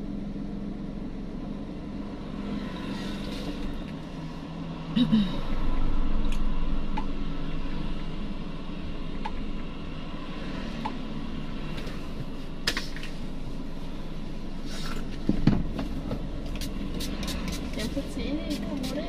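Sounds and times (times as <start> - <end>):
air-conditioning fan: 11.2 - 19.0.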